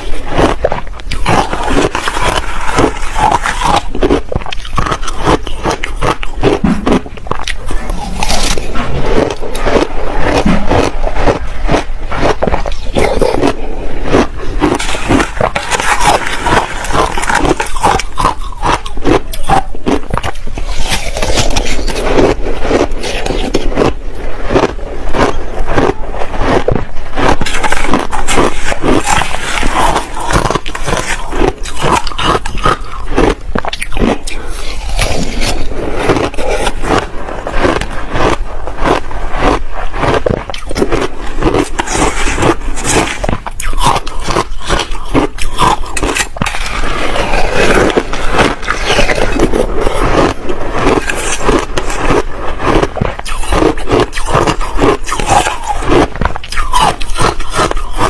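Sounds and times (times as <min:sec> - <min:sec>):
crunching crushed ice: 0:00.0 - 0:58.0.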